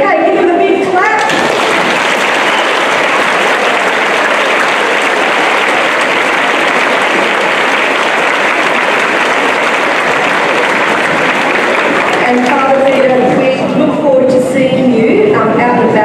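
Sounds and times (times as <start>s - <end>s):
crowd applauding: 1.2s - 13.6s.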